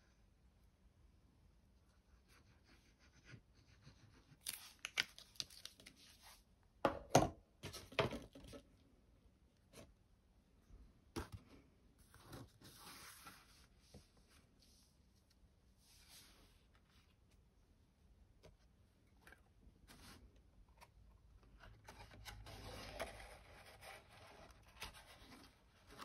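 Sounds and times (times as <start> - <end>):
card box rustling: 21.5 - 26.0
paper crackling and scraping: 21.5 - 26.0.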